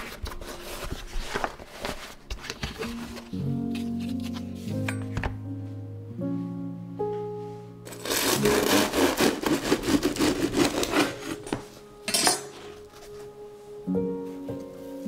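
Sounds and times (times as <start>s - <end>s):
light background music: 0.0s - 15.0s
knife sawing through crust: 7.9s - 11.6s.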